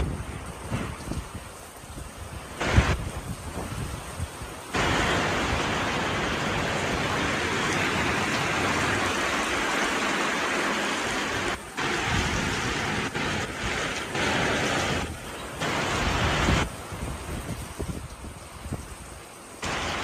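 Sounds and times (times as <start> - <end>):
heavy rain hiss: 0.0 - 20.0.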